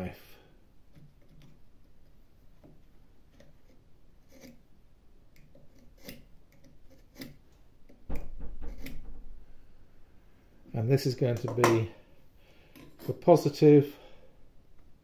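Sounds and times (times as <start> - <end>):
knife scratching wood: 3.3 - 4.6, 5.4 - 8.0
knock: 8.1 - 9.2.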